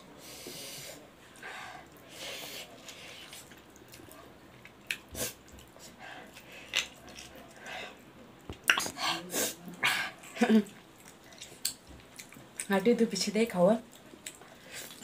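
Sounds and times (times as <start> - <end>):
chewing with wet smacks: 2.8 - 7.7, 9.7 - 12.8, 13.8 - 15.0.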